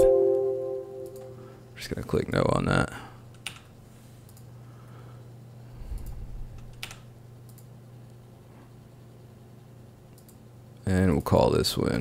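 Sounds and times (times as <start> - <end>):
low electrical hum: 0.0 - 12.0
computer keys clicking: 1.0 - 1.3, 3.3 - 3.7, 6.0 - 7.7, 10.1 - 10.4.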